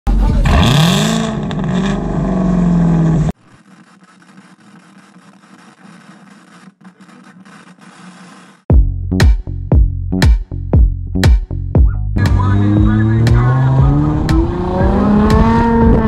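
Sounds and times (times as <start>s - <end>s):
loud car exhaust revving: 0.1s - 3.4s, 12.2s - 16.0s.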